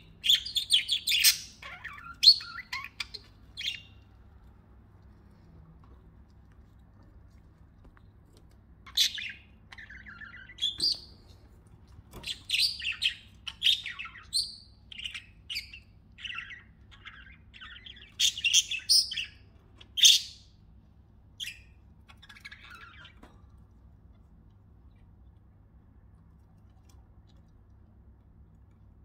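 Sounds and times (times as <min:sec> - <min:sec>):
budgerigars chirping and warbling: 0:00.0 - 0:04.0, 0:08.8 - 0:11.2, 0:12.1 - 0:20.5, 0:21.4 - 0:23.3.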